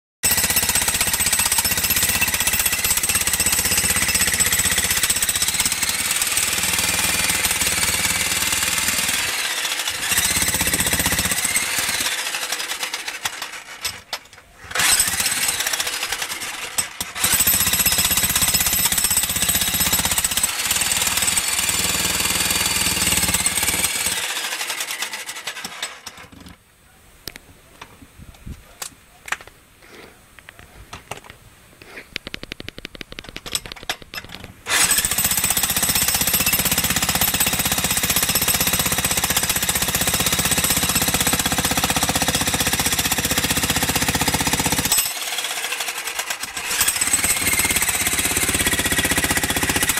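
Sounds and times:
jackhammer chiselling concrete: 0.2 - 14.0, 14.7 - 26.2, 34.7 - 49.9
faint clicks: 32.1 - 34.2.

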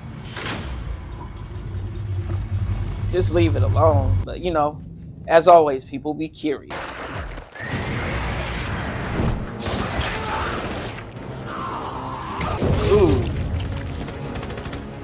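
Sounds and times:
heavy metal mechanism grinding: 0.2 - 4.2
man screaming: 11.4 - 13.3.

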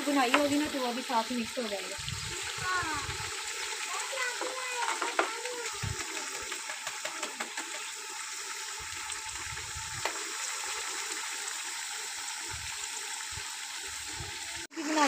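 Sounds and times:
food sizzling in a pot: 0.0 - 15.0.

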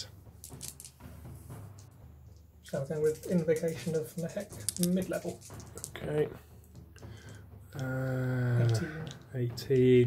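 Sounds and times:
game pieces clicking: 0.4 - 1.0, 2.8 - 6.0, 8.6 - 9.9.

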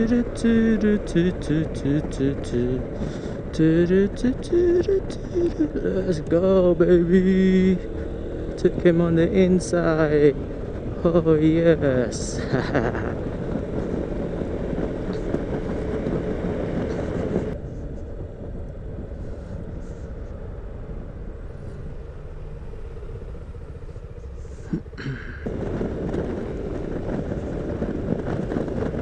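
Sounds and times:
scooter engine: 0.0 - 29.0
wind rush: 0.0 - 29.0.

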